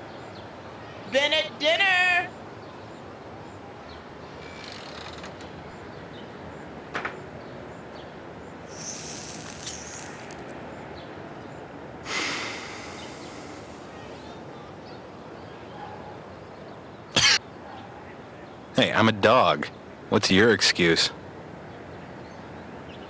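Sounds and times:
outdoor background hiss: 0.0 - 23.0
breathy exhale: 8.7 - 10.3, 12.0 - 14.0
cigarette drag crackling: 8.7 - 10.5, 12.1 - 13.8.

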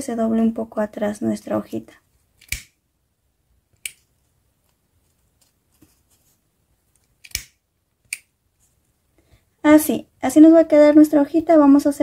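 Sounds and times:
lighter clicking: 7.2 - 8.2.

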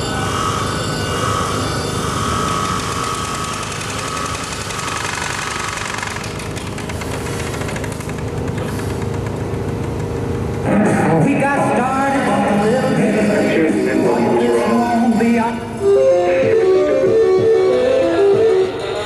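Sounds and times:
mechanical rattle and drone: 0.0 - 15.9
high tone: 10.7 - 19.0.

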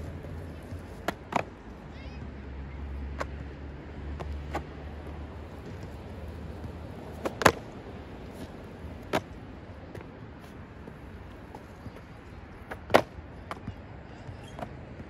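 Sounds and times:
skateboard clacking on concrete: 0.0 - 1.6, 4.2 - 13.8
skateboard wheels rolling on concrete: 0.0 - 15.0.

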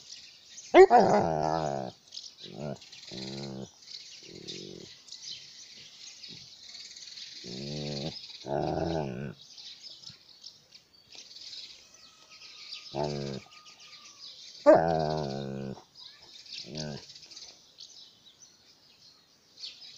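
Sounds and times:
dog growling in play: 0.8 - 4.9, 7.4 - 9.4, 12.9 - 13.5, 14.7 - 15.8, 16.6 - 17.1.

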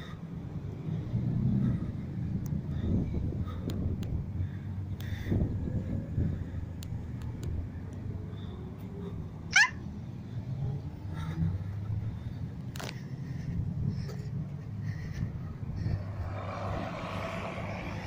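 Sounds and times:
low rumble of road traffic: 0.0 - 18.0.

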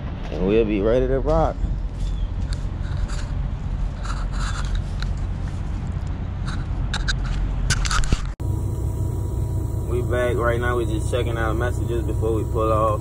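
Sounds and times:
phone rubbing against clothing: 2.4 - 5.8
diesel trucks idling: 8.4 - 13.0.

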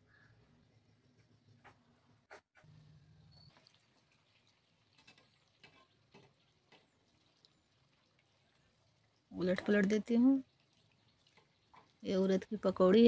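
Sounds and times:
faint crackles: 0.2 - 13.0
faint deep-frying sizzle: 2.7 - 13.0.

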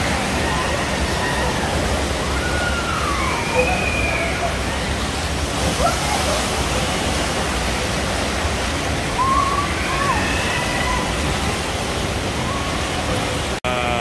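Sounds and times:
pool water rushing: 0.0 - 14.0
faint voices: 9.0 - 14.0.

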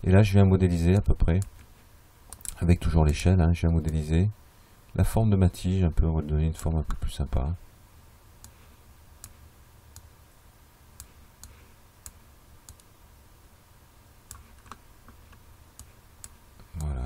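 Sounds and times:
low steady hum: 0.0 - 17.0
computer mouse clicks: 11.0 - 12.9.

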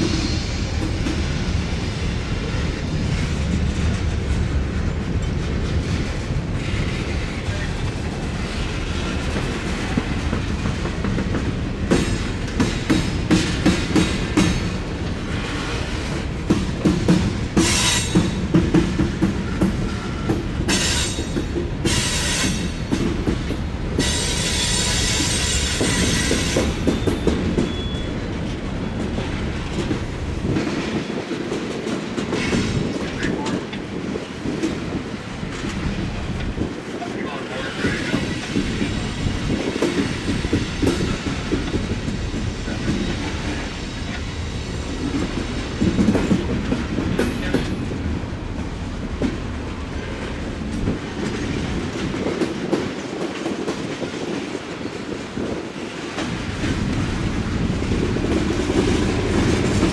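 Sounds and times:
steel wheels rumbling on rail: 0.0 - 59.9
wheels clacking over rail joints: 2.5 - 59.9
high-pitched wheel squeal: 24.6 - 28.1.

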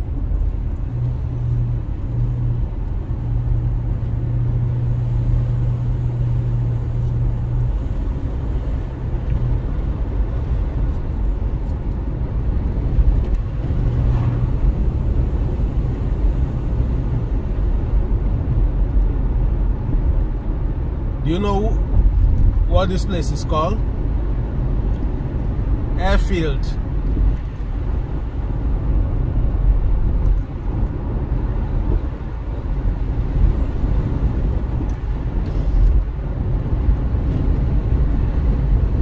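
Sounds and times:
tyre and road rumble: 0.0 - 22.9
car engine hum: 0.0 - 39.0.

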